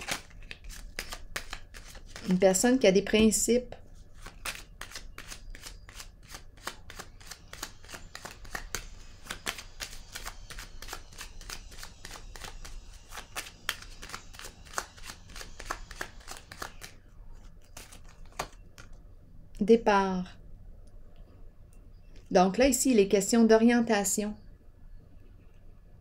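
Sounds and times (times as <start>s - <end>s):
cards being shuffled by hand: 0.0s - 2.5s, 4.0s - 19.0s.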